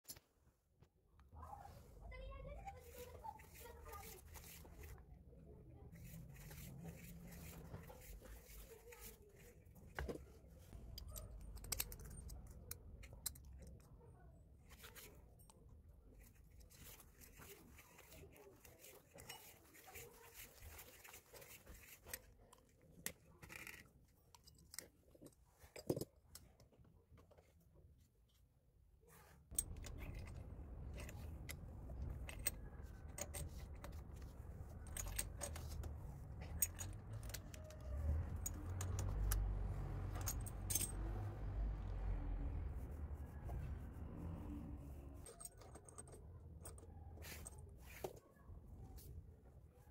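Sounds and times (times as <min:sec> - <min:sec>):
metal parts clicking and tapping: 0:10.8 - 0:13.9, 0:29.5 - 0:41.3, 0:45.1 - 0:47.0.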